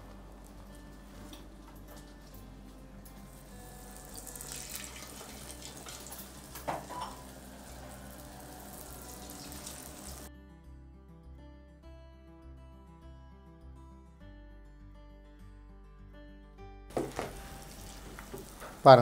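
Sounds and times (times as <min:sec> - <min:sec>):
soft background music: 0:00.0 - 0:19.0
oil crackle: 0:03.1 - 0:10.3, 0:16.9 - 0:19.0
batter sizzling in hot oil: 0:03.2 - 0:10.3, 0:16.9 - 0:19.0.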